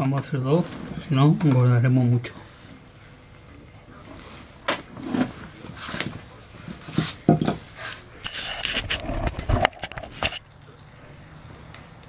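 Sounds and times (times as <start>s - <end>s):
knocks and light clatters: 3.4s - 10.5s.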